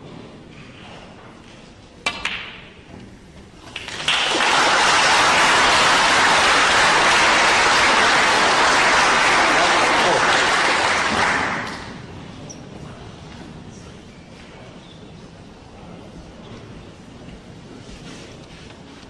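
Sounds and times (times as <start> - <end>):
audience applause: 3.7 - 12.0.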